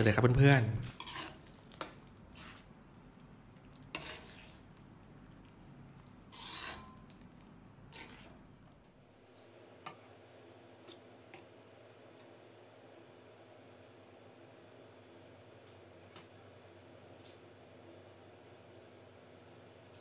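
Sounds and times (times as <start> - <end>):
ladle scraping wok: 0.0 - 2.8, 3.6 - 4.8, 6.0 - 8.5.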